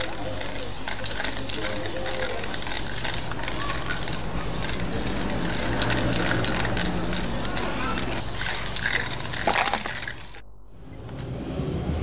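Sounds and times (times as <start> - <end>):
spray-paint can hissing: 0.0 - 10.4.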